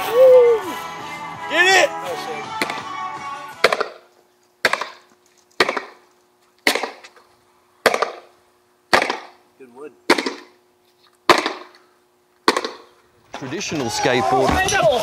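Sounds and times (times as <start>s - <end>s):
skateboard slammed against concrete wall: 12.4s - 12.9s.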